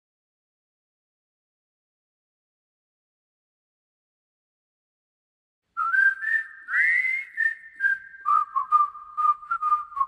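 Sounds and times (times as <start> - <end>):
whistled melody: 5.8 - 10.0.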